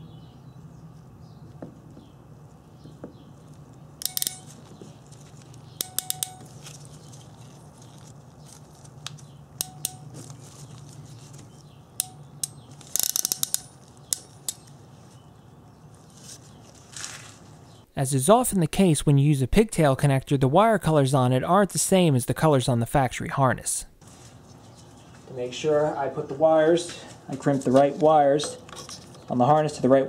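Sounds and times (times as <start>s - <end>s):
steady low hum: 0.0s - 30.0s
ratcheting crimper clicking: 4.0s - 4.5s, 5.8s - 6.5s, 9.6s - 10.1s, 12.0s - 14.7s.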